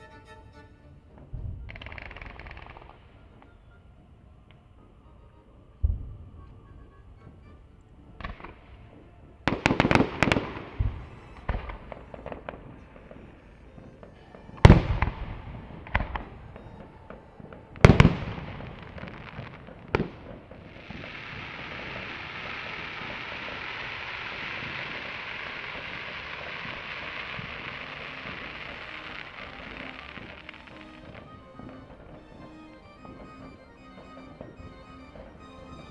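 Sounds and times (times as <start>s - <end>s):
loud firework bangs: 8.2s - 35.9s
crackling hiss of falling sparks: 19.6s - 31.8s.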